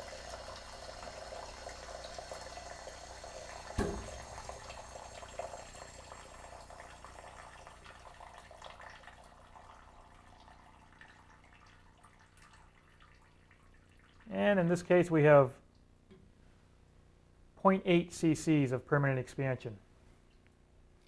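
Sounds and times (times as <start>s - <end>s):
water running and trickling: 0.0s - 14.3s
sharp knock: 3.8s - 4.4s.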